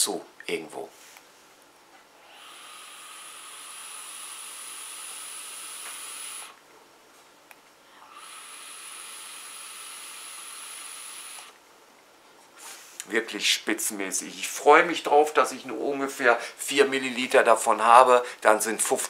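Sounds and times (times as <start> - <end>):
e-cigarette draw hiss: 2.2 - 6.6, 8.0 - 11.6.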